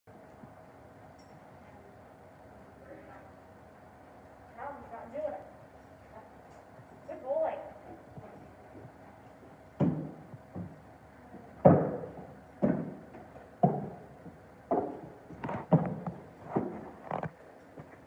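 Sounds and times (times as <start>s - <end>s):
hooves knocking on wooden ramp: 7.8s - 18.0s.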